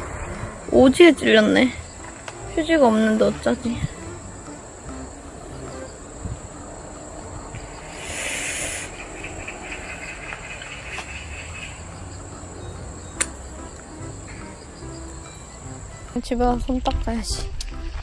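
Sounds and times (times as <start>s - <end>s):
insects buzzing: 0.0s - 18.0s
brief hissing rush: 7.8s - 9.0s
sharp click: 13.2s - 13.4s.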